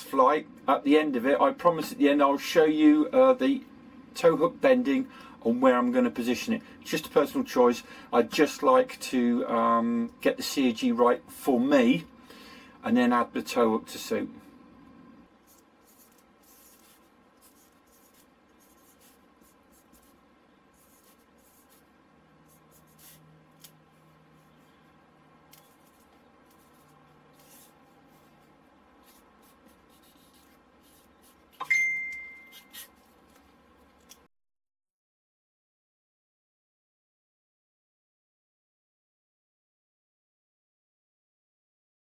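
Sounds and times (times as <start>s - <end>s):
pen scratching on paper: 15.4s - 23.7s, 25.5s - 31.6s, 32.4s - 33.3s
loud high beep: 31.6s - 32.6s.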